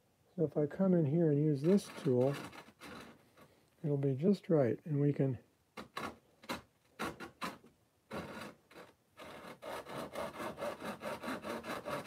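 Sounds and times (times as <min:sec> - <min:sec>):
pull saw cutting board: 0:01.6 - 0:03.4, 0:05.8 - 0:12.0.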